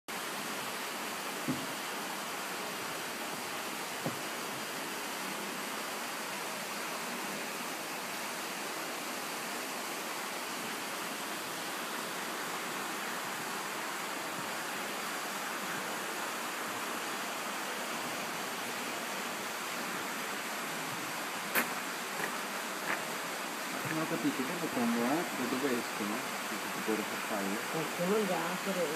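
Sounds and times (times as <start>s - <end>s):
steady hiss: 0.1s - 28.9s.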